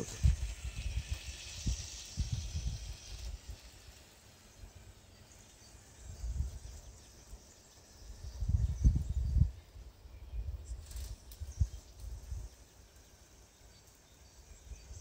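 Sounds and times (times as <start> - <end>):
wind buffeting microphone: 0.0 - 3.9, 6.0 - 7.0, 8.1 - 12.5
insects hissing in grass: 0.0 - 15.0.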